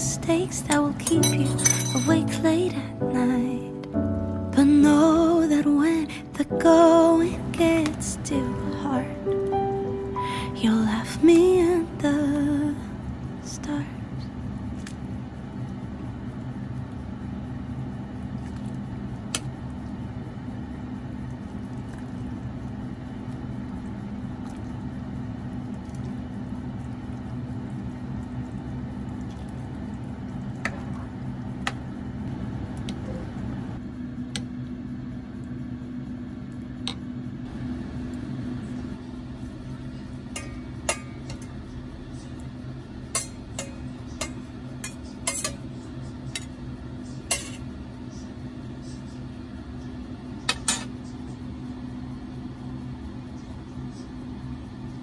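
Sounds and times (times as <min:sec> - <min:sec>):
steady low hum: 0:00.0 - 0:55.0
dishes and cookware clinking: 0:00.7 - 0:02.2, 0:43.1 - 0:45.7, 0:47.3 - 0:47.6.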